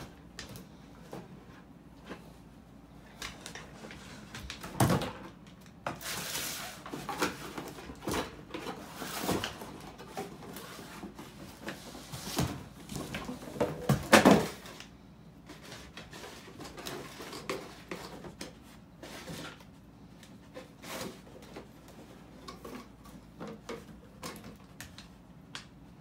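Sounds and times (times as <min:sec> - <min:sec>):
cardboard scraping and rustling: 0:05.9 - 0:14.8, 0:20.4 - 0:24.5
boxes knocking on wooden floor: 0:12.3 - 0:14.6.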